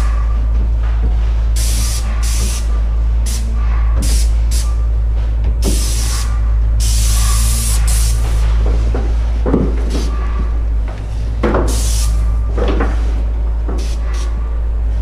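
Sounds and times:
steady low hum: 0:00.0 - 0:15.0
paint spray gun hissing: 0:01.6 - 0:03.4, 0:05.7 - 0:08.4, 0:11.7 - 0:12.2, 0:13.8 - 0:14.3.

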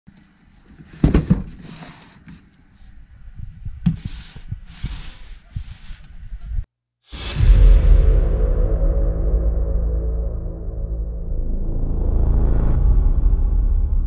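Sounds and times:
cardboard scraping and rustling: 0:00.8 - 0:02.5, 0:03.9 - 0:06.2
box thumping on wooden desk: 0:01.0 - 0:01.6.

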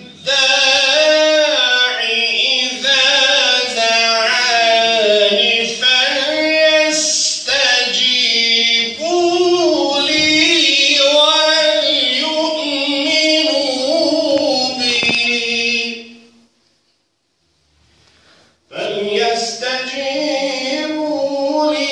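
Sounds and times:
man reciting melodically into microphone: 0:00.0 - 0:16.5, 0:18.6 - 0:21.9.

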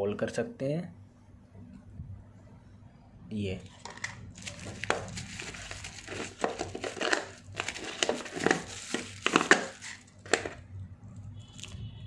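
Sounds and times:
plastic wrapper crinkling: 0:03.6 - 0:10.6.

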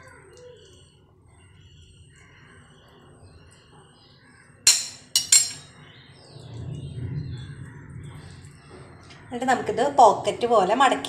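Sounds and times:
birds chirping: 0:00.0 - 0:11.0
steel spoon clinking on pan: 0:04.7 - 0:05.8.

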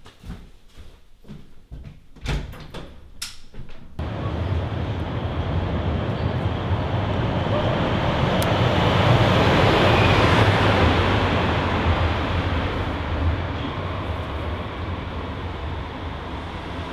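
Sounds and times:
train rumbling on viaduct: 0:04.0 - 0:16.9.

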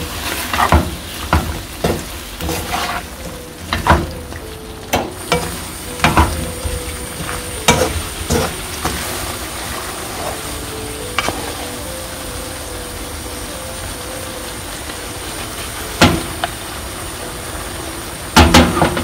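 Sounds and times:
food sizzling in a pan: 0:00.0 - 0:19.0
spatula knocking and scraping pan: 0:00.3 - 0:04.2, 0:07.1 - 0:09.2.

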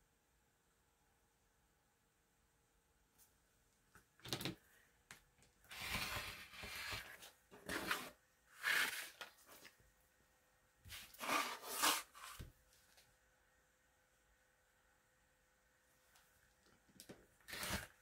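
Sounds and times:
ruler and fabric scraping on mat: 0:05.7 - 0:09.7, 0:10.9 - 0:12.5.

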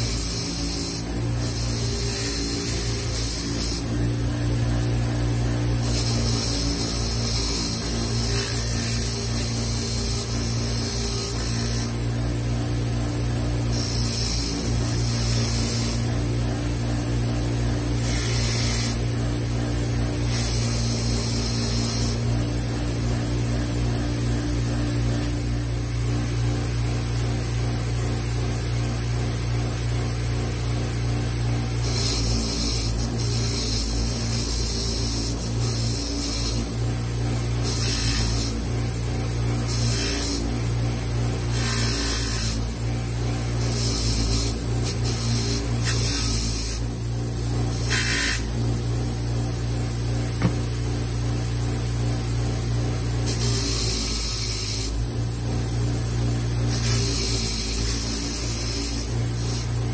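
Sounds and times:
bench grinder motor humming: 0:00.0 - 0:59.9.

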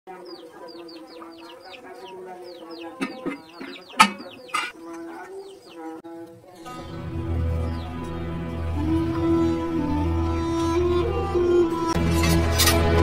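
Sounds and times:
chickens clucking: 0:00.1 - 0:06.4.

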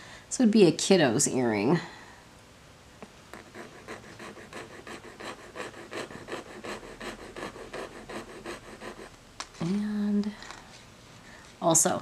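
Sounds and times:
earring scratching on touchstone: 0:03.4 - 0:09.2.

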